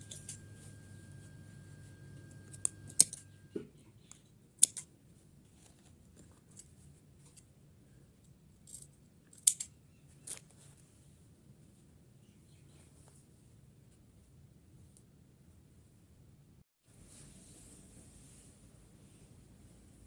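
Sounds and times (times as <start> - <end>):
shears snipping cloth: 0.0 - 3.5.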